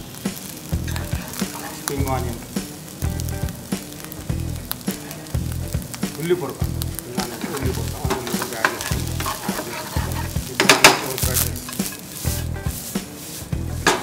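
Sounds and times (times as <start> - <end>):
rice sizzling in a pan: 0.0 - 14.0
metal spatula scraping a pan: 7.3 - 14.0.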